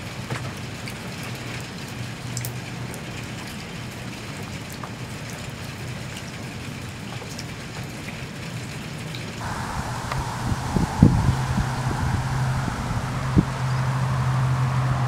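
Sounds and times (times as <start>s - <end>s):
rain pattering on a puddle: 0.0s - 15.0s
low hum: 9.4s - 15.0s.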